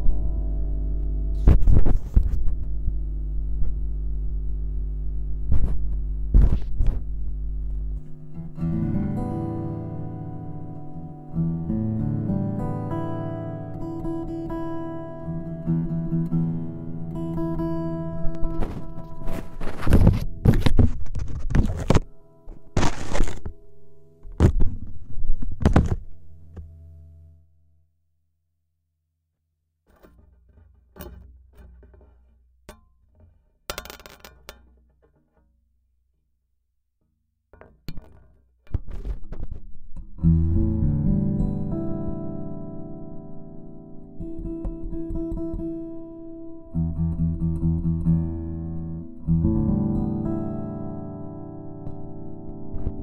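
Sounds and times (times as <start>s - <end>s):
plucked guitar strings: 0.0s - 3.8s, 5.5s - 26.9s, 29.9s - 35.5s, 37.6s - 53.0s
mains hum: 0.0s - 27.8s
fingers tapping guitar body: 1.0s - 3.0s, 29.9s - 35.5s, 37.6s - 40.7s, 44.2s - 45.8s
open guitar strings ringing: 29.9s - 35.4s.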